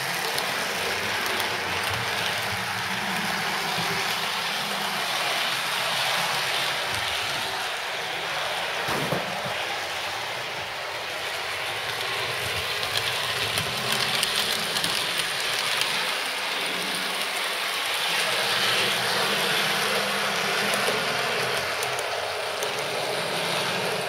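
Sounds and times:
model train motor whir: 0.0 - 24.0
faint clicks on rail: 1.2 - 2.6, 11.9 - 16.0, 19.8 - 24.0.

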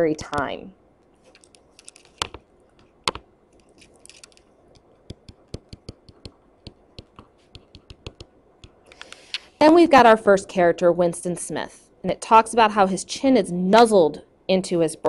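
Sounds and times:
stylus tapping on tablet: 4.8 - 8.8.

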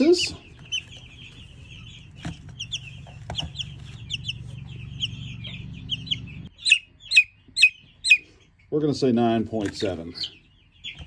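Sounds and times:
chicks peeping: 0.0 - 11.0
steady low hum: 0.2 - 8.8.

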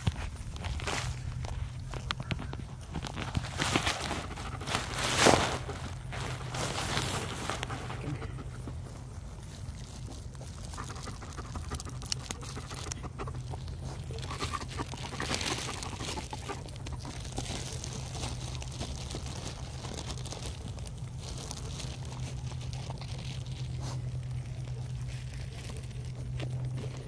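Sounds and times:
dry grass rustling and crackling: 0.0 - 27.0
steady low hum: 0.0 - 27.0.

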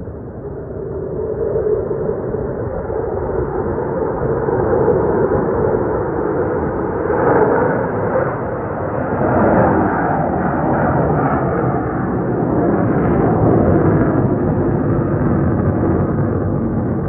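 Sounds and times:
jets flying overhead: 0.0 - 17.0.

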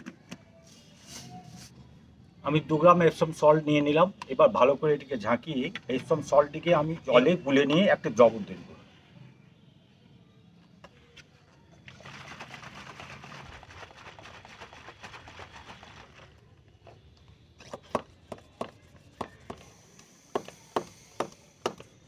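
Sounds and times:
water sloshing in spray bottle: 11.8 - 16.5.

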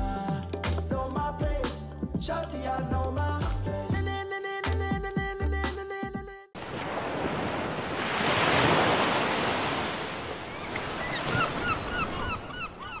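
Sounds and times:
rush of surf-like noise: 6.6 - 11.5.

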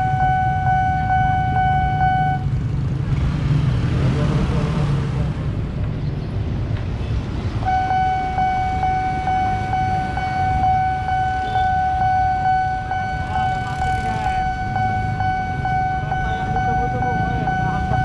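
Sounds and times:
pulsing electronic warning tone: 0.0 - 2.5, 7.6 - 18.0
motorbike and minibus engines: 0.0 - 18.0.

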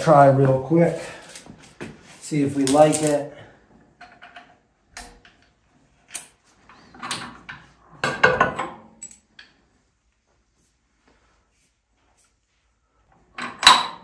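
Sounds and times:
metal clanks and knocks: 6.9 - 9.2.

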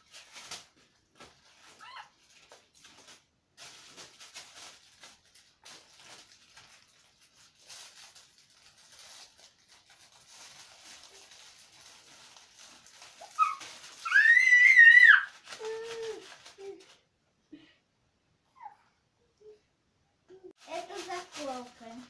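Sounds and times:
plastic bags crinkling: 0.0 - 17.0, 20.6 - 22.0
baby squealing: 13.2 - 16.1.

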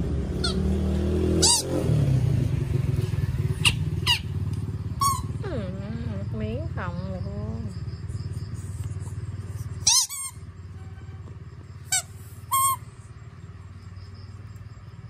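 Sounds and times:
rubber squeaky toy squeaking: 0.4 - 0.6, 1.4 - 1.8, 3.6 - 4.3, 5.0 - 5.4, 9.8 - 10.4, 11.9 - 12.9.

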